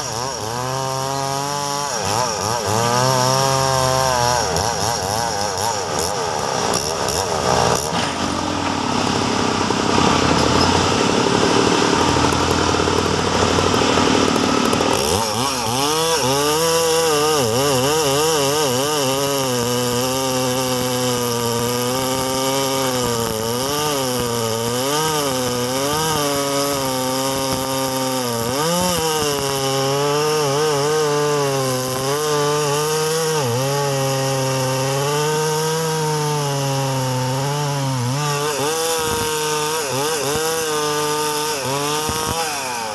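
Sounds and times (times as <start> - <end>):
chainsaw cutting log: 0.0 - 42.9.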